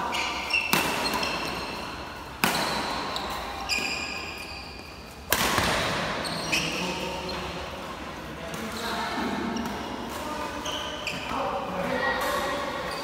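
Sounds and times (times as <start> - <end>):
shoes squeaking on court floor: 0.0 - 7.9, 8.5 - 13.0
rackets hitting shuttlecock: 0.1 - 4.5, 5.2 - 6.2.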